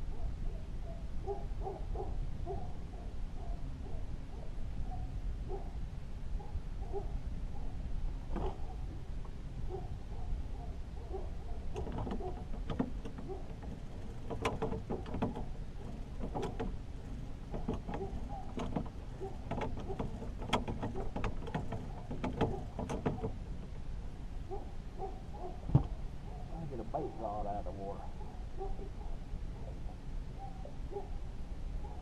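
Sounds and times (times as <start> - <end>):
sharp clicks and knocks: 11.7 - 23.8.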